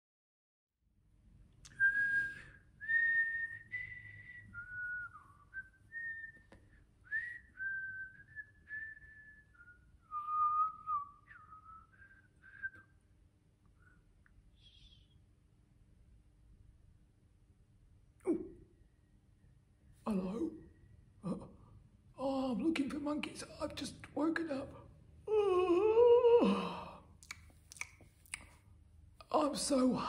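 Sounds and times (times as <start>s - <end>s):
woman whistling a slow tune: 1.7s - 13.0s.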